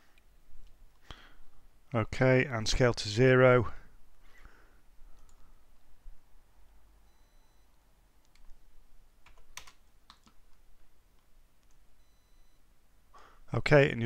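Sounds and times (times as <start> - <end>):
keyboard keystrokes and clicks: 9.2 - 10.6.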